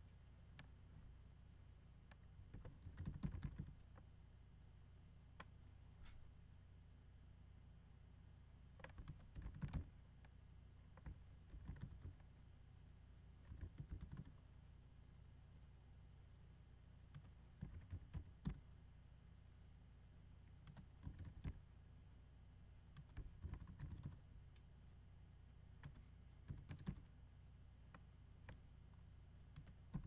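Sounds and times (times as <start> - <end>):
low steady hum: 0.0 - 30.0
typing on computer keyboard: 2.5 - 3.8, 8.8 - 9.9, 11.0 - 12.2, 13.4 - 14.4, 17.1 - 18.6, 20.6 - 21.6, 22.9 - 24.2, 25.8 - 27.1, 29.5 - 30.0.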